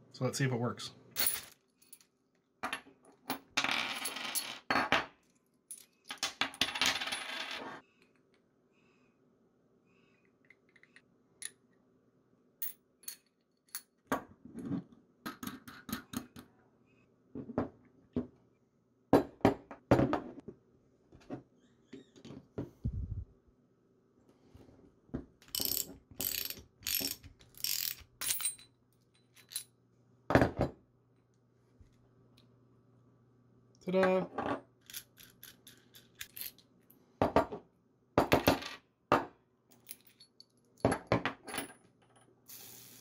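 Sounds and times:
metal parts clinking on wooden desk: 1.2 - 5.1, 12.6 - 14.2, 25.4 - 29.8, 34.4 - 36.7, 39.7 - 42.3
socket wrench ratcheting: 25.4 - 28.1.

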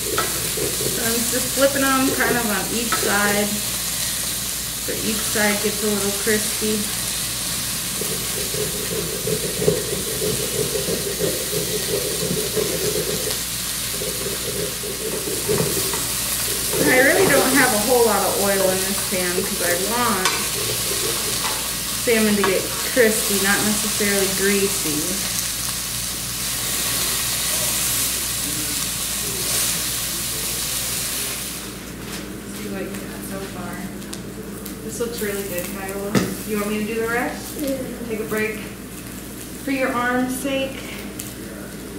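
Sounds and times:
food sizzling in frying pan: 0.0 - 41.9.

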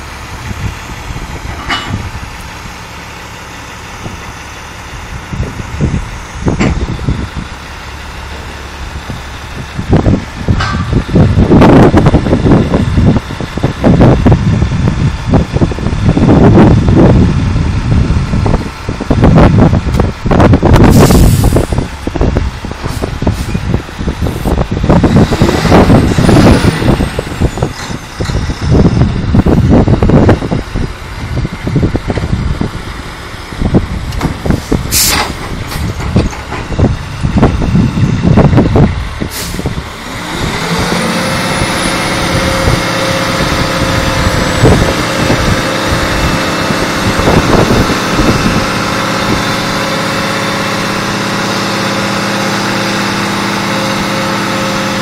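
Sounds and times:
diesel engine rumbling: 0.0 - 55.0
air hisses: 20.9 - 21.8.

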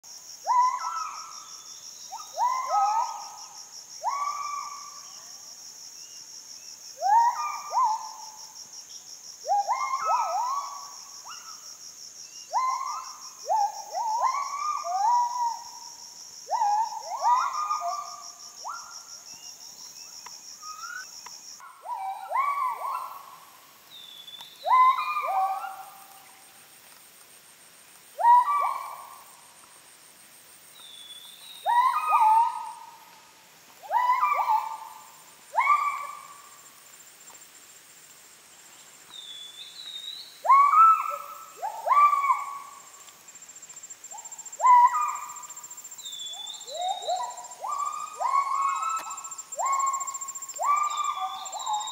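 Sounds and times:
gibbons whooping calls: 46.3 - 51.9.

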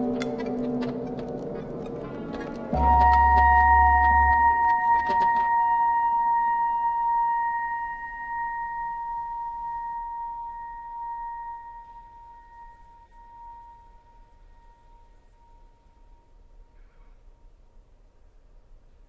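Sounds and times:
clarinet high held note: 2.8 - 14.0.

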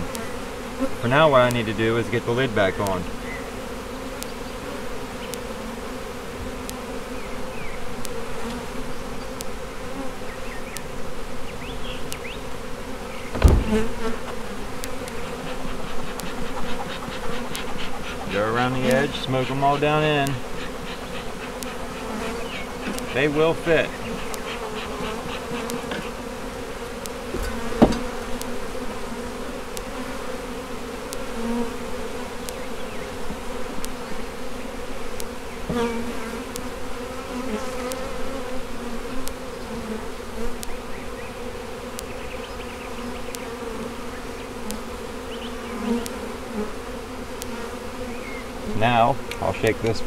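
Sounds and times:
bees buzzing: 0.0 - 50.0
sharp knock: 13.3 - 14.4, 27.3 - 28.2.

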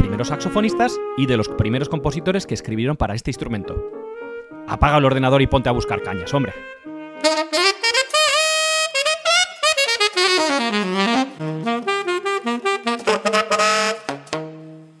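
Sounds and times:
saxophone playing jazzy runs: 3.8 - 15.0.

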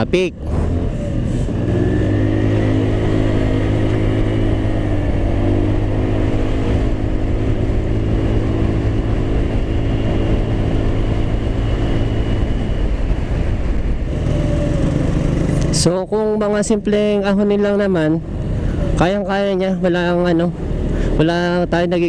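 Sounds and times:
scooter engine running under load: 0.4 - 16.3.

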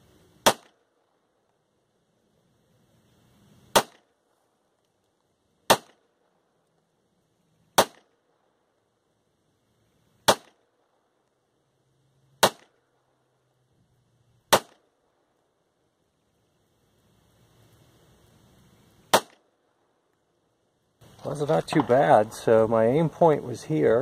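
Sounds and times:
pistol shots: 0.4 - 0.9, 3.7 - 4.1, 5.7 - 6.1, 7.8 - 8.2, 10.2 - 10.9, 12.4 - 12.8, 14.5 - 14.9, 19.1 - 19.5.

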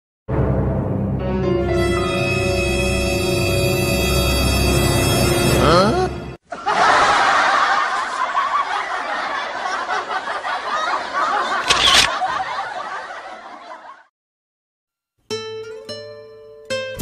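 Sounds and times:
people laughing and snickering: 6.5 - 14.0
camera shutter click: 11.6 - 12.2.

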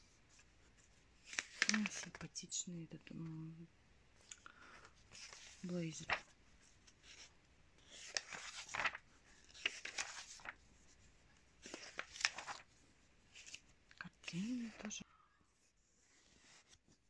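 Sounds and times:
magazine pages turning: 0.3 - 2.2, 4.2 - 14.9, 16.0 - 17.0.

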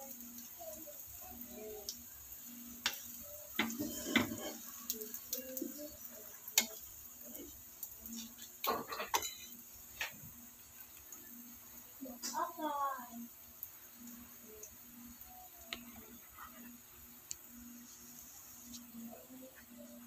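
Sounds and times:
spatula scraping frying pan: 2.8 - 5.2, 15.7 - 16.8.

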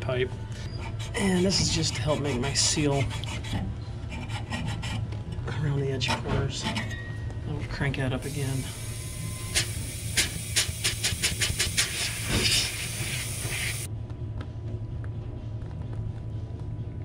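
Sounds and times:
gas hissing through tubing: 8.2 - 13.9.

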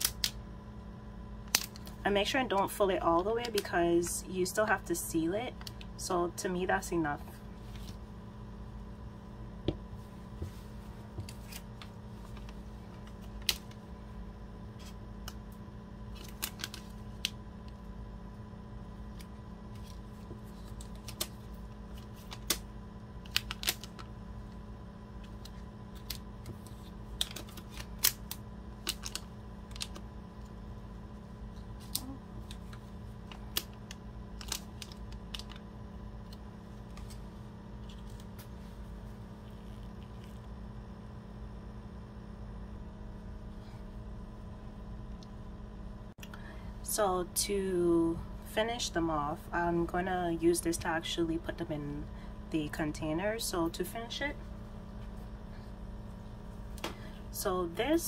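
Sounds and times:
clicks and crinkles of packaging: 16.1 - 17.4, 23.2 - 24.1, 25.2 - 30.0, 31.8 - 35.6.

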